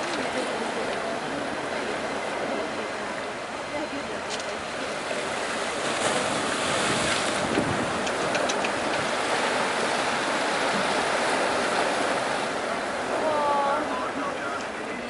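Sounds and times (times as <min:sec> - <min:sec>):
sea water washing: 0:00.0 - 0:15.0
wind buffeting microphone: 0:05.7 - 0:12.4
faint clicks: 0:07.5 - 0:09.0.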